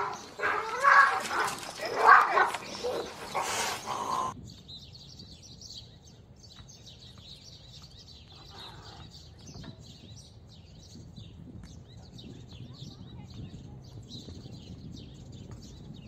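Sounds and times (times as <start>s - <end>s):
cat yowling: 0.0s - 3.1s
birds chirping: 0.0s - 16.0s.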